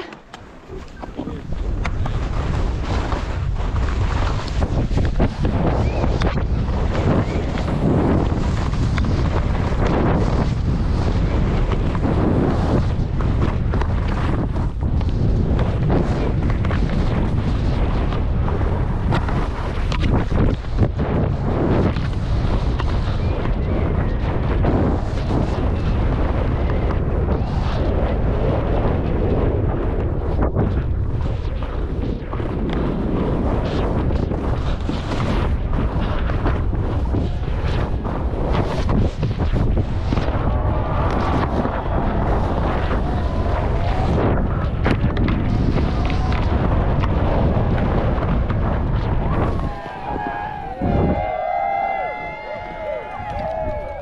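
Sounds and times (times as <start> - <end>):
skis knocking on bumps: 0.0 - 20.9
skis scraping over snow: 0.0 - 50.2
wind blasting microphone: 0.0 - 54.0.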